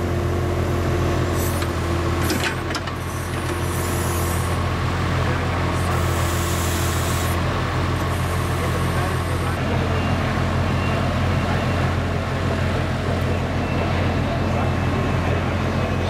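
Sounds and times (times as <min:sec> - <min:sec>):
diesel engine running: 0:00.0 - 0:16.0
backhoe clanks: 0:01.4 - 0:09.6.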